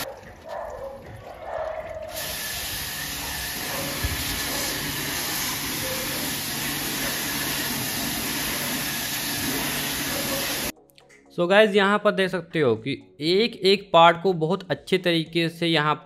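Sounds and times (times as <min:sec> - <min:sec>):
pressure washer spraying metal grille: 0:02.1 - 0:10.7.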